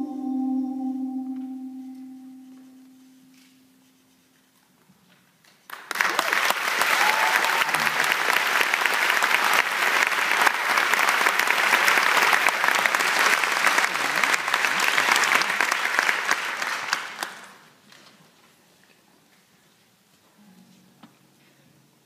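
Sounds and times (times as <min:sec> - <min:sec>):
audience applauding: 0:05.6 - 0:17.7.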